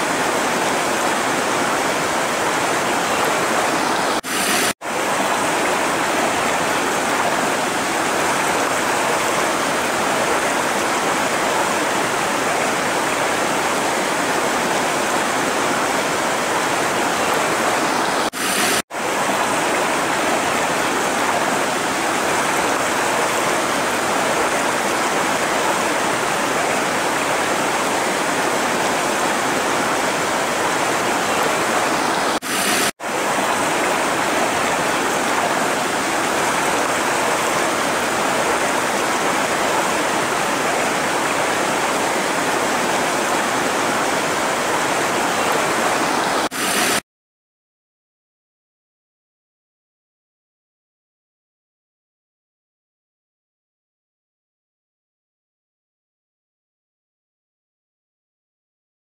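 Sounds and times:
river rushing over rocks: 0.0 - 47.0.

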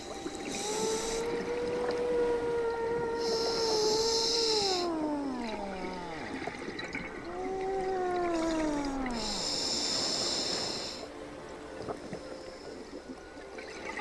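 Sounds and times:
exhale bubbling underwater: 0.0 - 11.1
regulator hissing inhale: 0.2 - 1.3, 3.2 - 4.9, 9.2 - 11.1.

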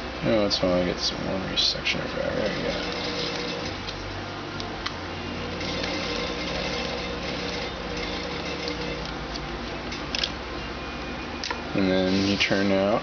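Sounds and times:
sewing machine running: 2.4 - 3.8, 5.5 - 9.1.

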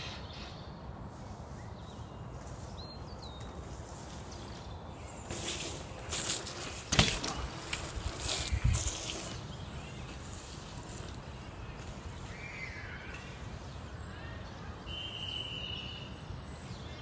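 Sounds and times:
bike tyres crunching on dirt: 1.8 - 13.6.

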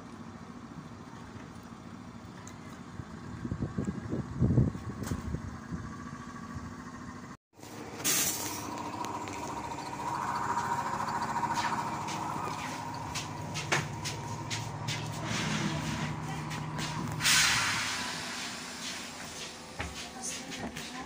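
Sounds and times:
trolleybus whine and hum: 0.0 - 21.0
vehicles passing: 1.4 - 19.7
air hiss: 16.8 - 19.7.

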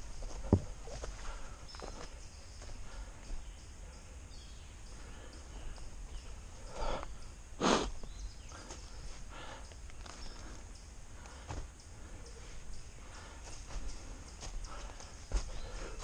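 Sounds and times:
footsteps and scuffs on rock: 0.0 - 3.5, 13.1 - 16.0
hard breathing: 0.8 - 16.0.

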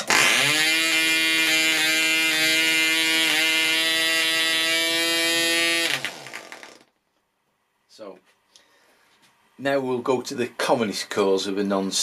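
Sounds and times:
model aircraft engine running: 0.1 - 6.8.

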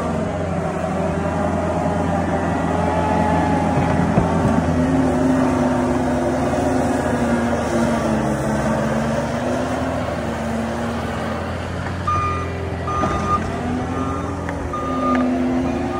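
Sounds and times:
diesel engine running: 0.0 - 15.9
backup alarm beeping: 12.1 - 15.3.

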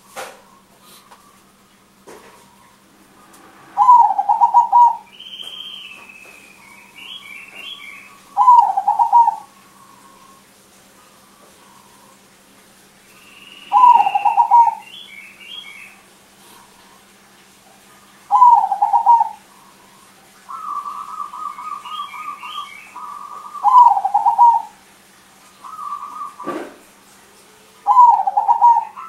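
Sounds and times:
dove cooing: 3.7 - 12.2, 13.7 - 15.7, 18.1 - 24.8, 25.6 - 26.9, 27.6 - 29.0
soft trilling coo: 3.8 - 5.1, 8.4 - 10.4, 13.7 - 14.8, 18.3 - 19.6, 20.5 - 24.8, 27.8 - 29.0.

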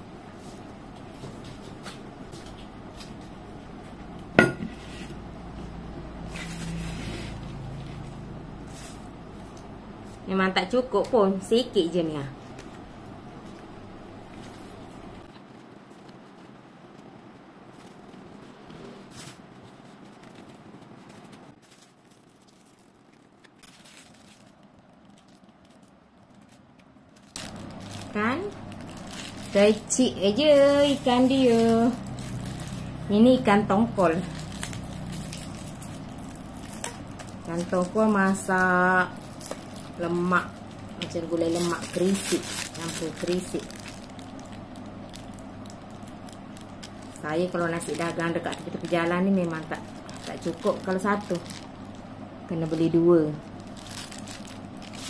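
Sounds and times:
ceramic plate clinking on table: 4.4 - 4.7
leaf food wrapper rustling: 4.8 - 55.0
soft crackles: 5.0 - 55.0
plastic bag crinkling: 6.2 - 10.3, 14.4 - 55.0.

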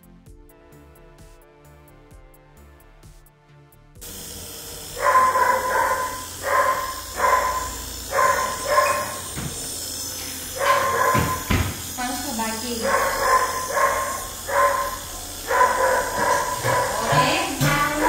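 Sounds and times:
background music: 0.0 - 9.0, 11.9 - 18.0
dog barking: 4.8 - 9.6, 10.2 - 18.0.

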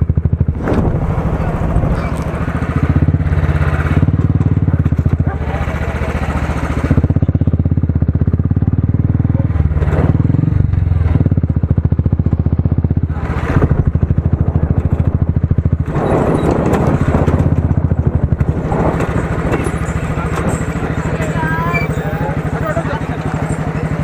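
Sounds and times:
motorcycle engine running: 0.0 - 24.0
wind noise: 13.1 - 21.0.

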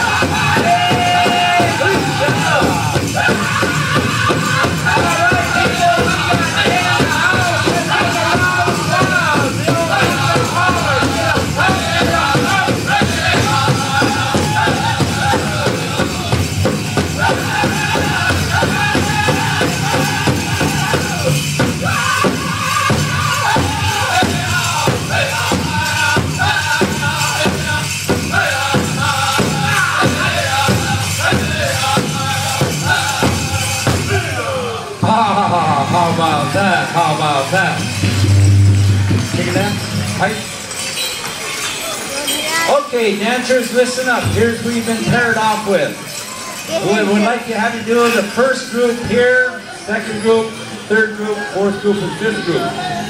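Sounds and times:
large drum steady beat: 0.0 - 34.4, 37.8 - 40.5
group singing in high voices: 0.0 - 35.0.

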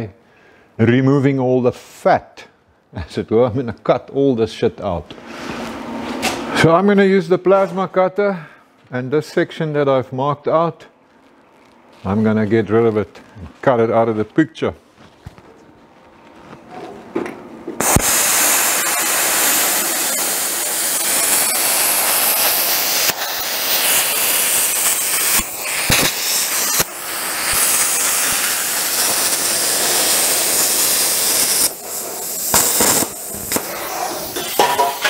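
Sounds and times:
plasma cutter hissing: 17.8 - 35.0.

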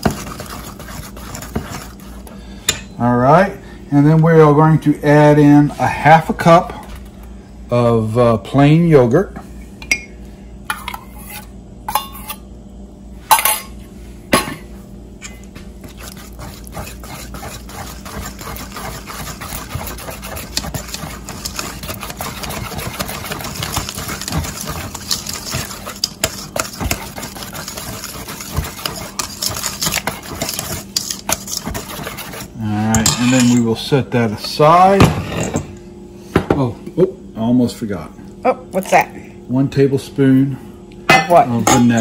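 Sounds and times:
whisk rattling in steel bowl: 0.0 - 2.3, 15.8 - 33.6.

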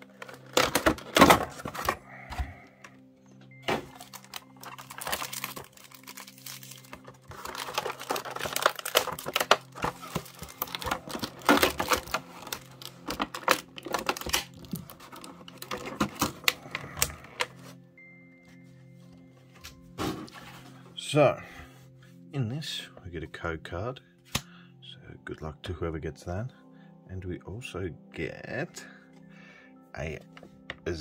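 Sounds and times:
soft background music: 0.0 - 31.0
packaging being ripped open: 3.8 - 17.6.

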